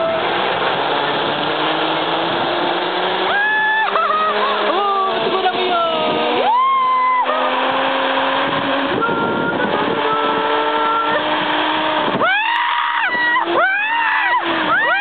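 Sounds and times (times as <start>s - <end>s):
zipline trolley whirring on cable: 0.0s - 15.0s
person whooping: 3.3s - 4.9s, 6.4s - 7.6s, 12.2s - 15.0s.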